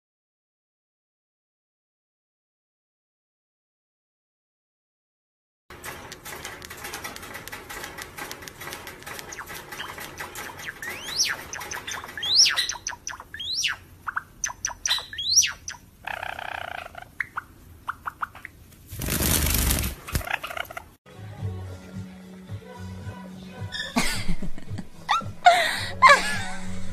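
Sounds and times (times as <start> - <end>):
sparrow singing: 9.2 - 18.5.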